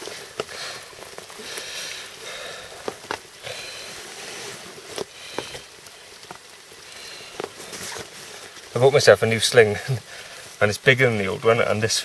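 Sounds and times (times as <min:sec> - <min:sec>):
rain pattering: 0:00.0 - 0:12.0
handling rustling and taps: 0:02.8 - 0:03.3.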